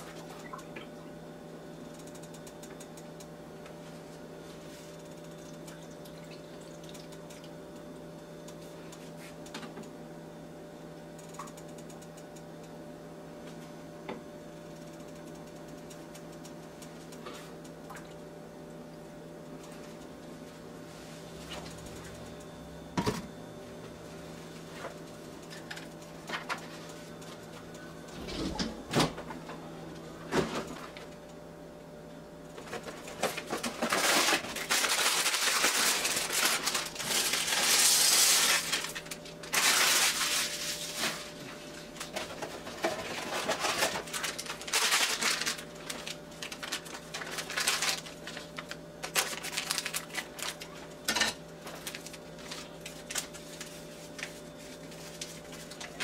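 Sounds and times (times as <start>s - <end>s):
faint hum: 0.0s - 56.0s
noodle packaging rustling and rattling: 32.6s - 41.4s, 42.0s - 50.8s, 51.6s - 56.0s.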